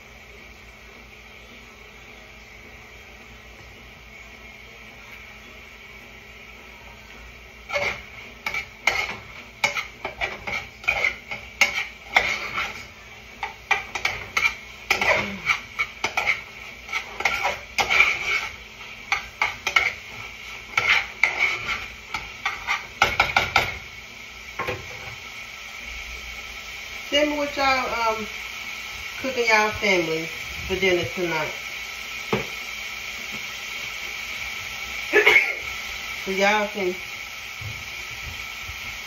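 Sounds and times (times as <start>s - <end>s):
utensil scraping saucepan: 7.6s - 23.8s.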